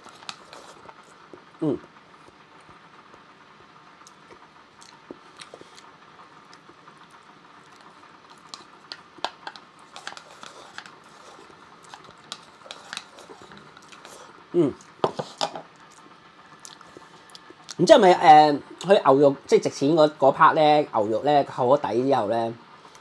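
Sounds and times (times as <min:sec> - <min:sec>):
person chewing: 0:00.0 - 0:03.2, 0:04.0 - 0:17.8.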